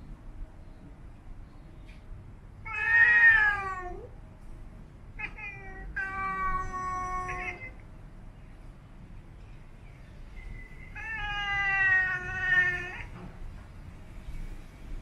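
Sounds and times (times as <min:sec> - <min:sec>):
cat yowling: 0:02.6 - 0:04.1, 0:05.2 - 0:07.8, 0:11.0 - 0:13.2.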